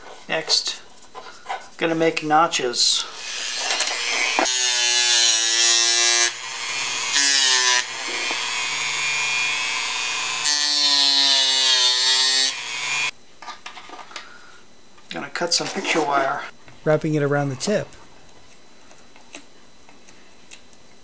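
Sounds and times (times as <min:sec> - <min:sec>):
rotary tool motor whine: 0:03.0 - 0:13.1.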